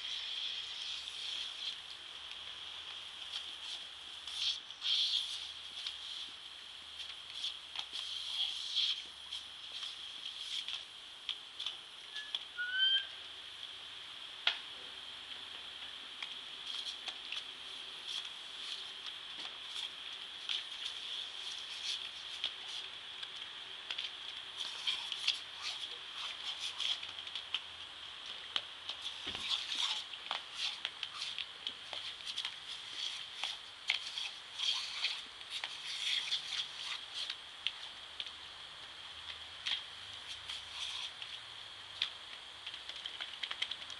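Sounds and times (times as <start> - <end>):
sprinkler water jet hissing: 0.0 - 14.1, 15.3 - 43.9
bird chirping: 12.1 - 13.2.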